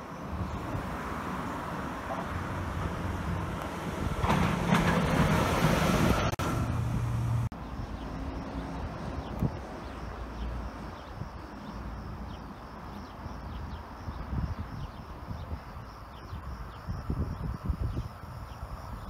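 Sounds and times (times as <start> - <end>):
freight locomotive passing: 0.0 - 10.9.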